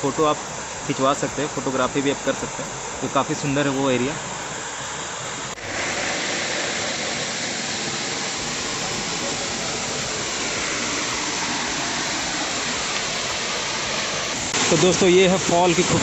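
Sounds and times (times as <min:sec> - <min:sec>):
waterfall pouring into pool: 0:05.4 - 0:16.0.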